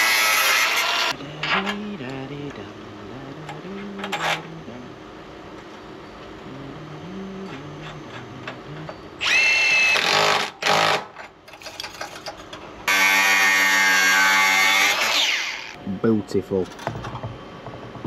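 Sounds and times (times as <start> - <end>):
angle grinder cutting steel: 0.0 - 1.2, 12.9 - 15.8.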